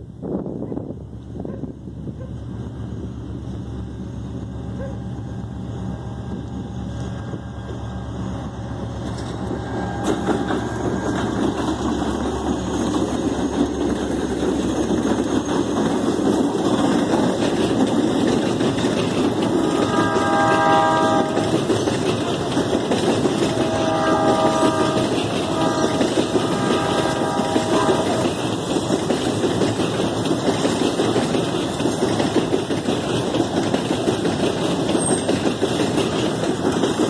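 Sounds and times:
locomotive engine drone: 0.0 - 37.0
wagons rumbling and rattling: 8.7 - 37.0.

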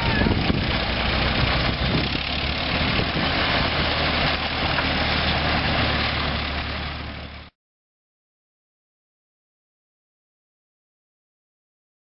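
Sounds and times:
truck engine running: 0.0 - 7.5.

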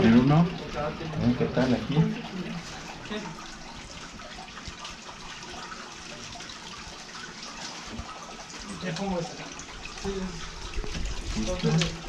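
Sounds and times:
water running and splashing: 0.0 - 12.0.

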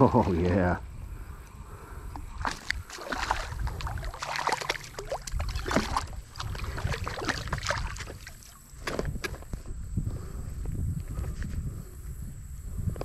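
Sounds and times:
water sloshing: 2.1 - 9.5
fish splashing at water surface: 2.4 - 9.0.

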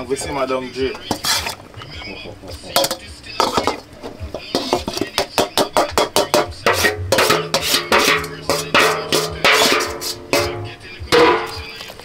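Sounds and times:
metal spoon scraping a bowl: 0.9 - 1.6, 2.8 - 11.8
background music with a beat: 2.4 - 12.0.

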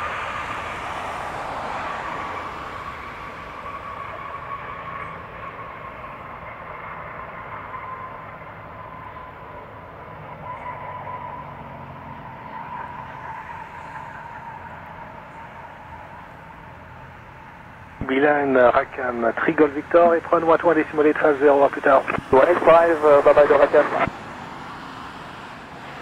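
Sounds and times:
jet engines whine and rumble: 0.0 - 10.7, 12.1 - 26.0.

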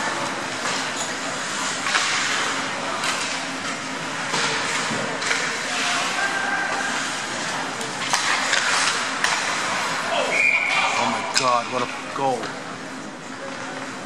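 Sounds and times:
hockey sticks clacking on puck: 0.6 - 10.0
skates rushing on ice: 4.2 - 11.2.

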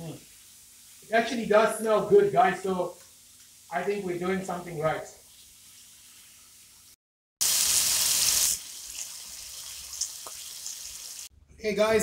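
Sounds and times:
steaks sizzling in a skillet: 0.2 - 1.0, 7.4 - 11.3
small pops of frying fat: 3.0 - 3.6, 8.9 - 10.8.

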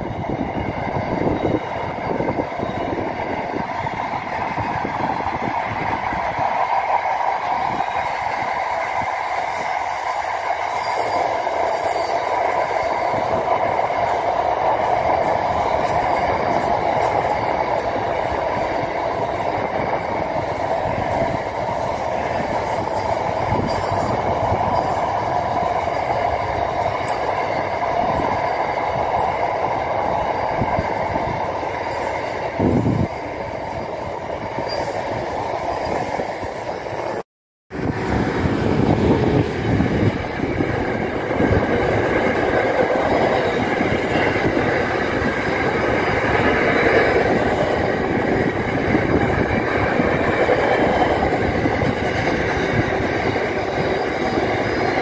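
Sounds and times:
train wagons rolling past: 0.0 - 55.0.

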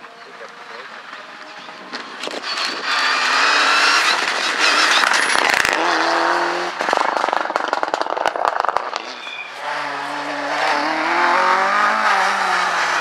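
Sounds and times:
exhaust popping and crackling: 0.0 - 11.8
exhaust crack: 0.4 - 11.7
rally car engine racing past: 9.0 - 13.0.

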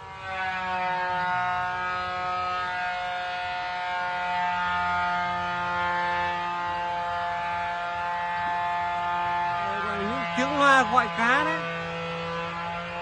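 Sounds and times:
loudspeaker droning tone: 8.0 - 13.0.

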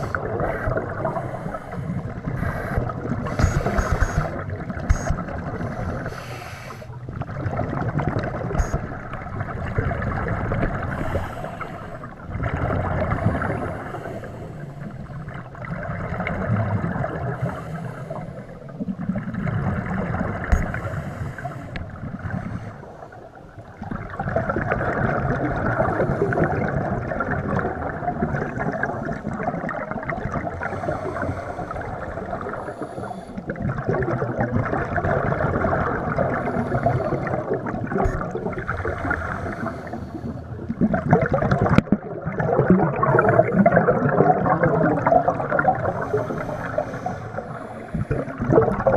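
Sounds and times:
underwater regulator breathing bubbles: 0.0 - 7.0, 35.0 - 48.9.

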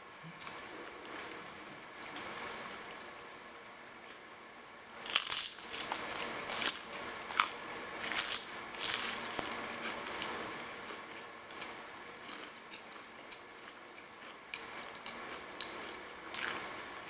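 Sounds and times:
rice cake crunching: 4.9 - 16.8.

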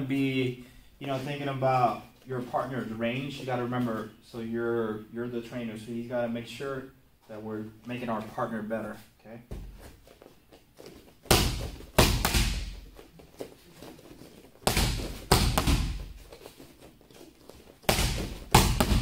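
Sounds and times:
boxing gloves hitting mitts: 11.2 - 13.0, 14.6 - 16.5, 17.7 - 19.0.

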